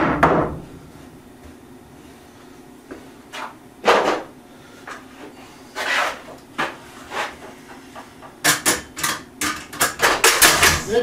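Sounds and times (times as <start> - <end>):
knocks and clatter of tools: 8.0 - 10.9.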